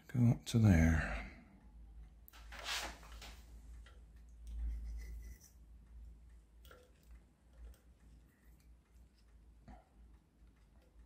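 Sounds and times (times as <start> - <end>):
soft rustle: 2.3 - 3.7.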